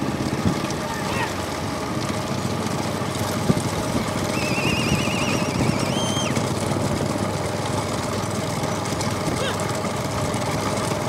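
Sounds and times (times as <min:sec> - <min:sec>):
motorcycle engines rumbling: 0:00.0 - 0:11.0
road noise: 0:00.0 - 0:11.0
high warbling whistle: 0:04.3 - 0:06.4.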